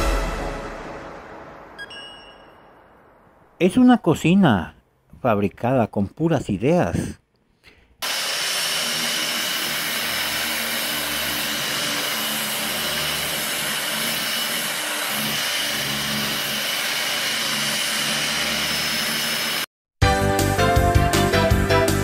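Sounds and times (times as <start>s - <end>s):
sanding disc rasping on wood: 8.0s - 19.6s
angle grinder whine: 8.0s - 19.7s.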